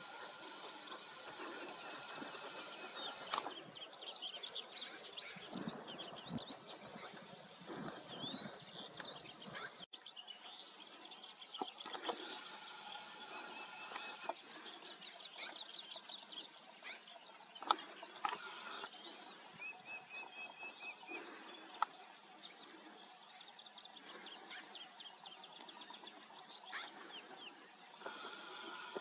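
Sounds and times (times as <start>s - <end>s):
sharp clicks: 0.0s - 3.6s, 11.6s - 14.4s, 17.6s - 18.9s, 28.0s - 29.0s
small songbirds singing: 0.0s - 29.0s.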